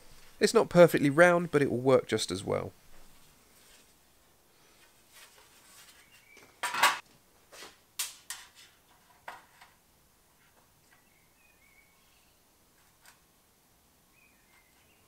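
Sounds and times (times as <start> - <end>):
metal parts clattering on workbench: 6.6 - 7.0.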